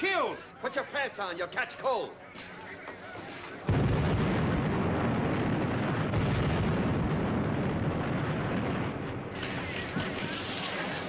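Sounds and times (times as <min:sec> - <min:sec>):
explosions: 0:03.6 - 0:11.0
gunfire: 0:03.6 - 0:11.0.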